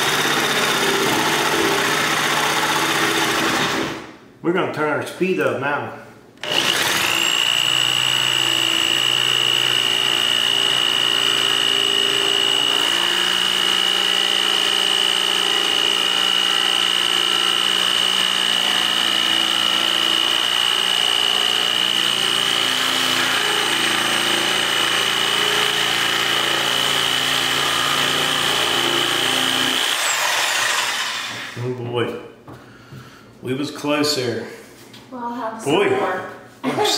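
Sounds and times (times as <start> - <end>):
jigsaw cutting: 0.0 - 4.1, 6.4 - 31.6.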